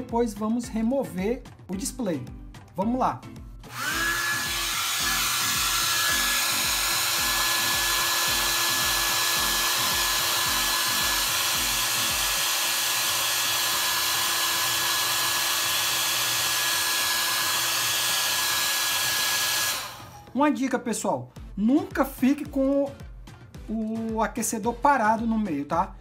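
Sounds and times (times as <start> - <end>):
hair dryer blowing: 3.6 - 20.4.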